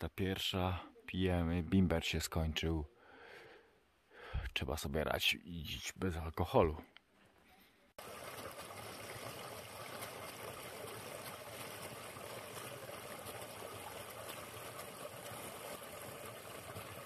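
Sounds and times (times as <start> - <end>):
stream pouring over cascade: 8.0 - 17.0.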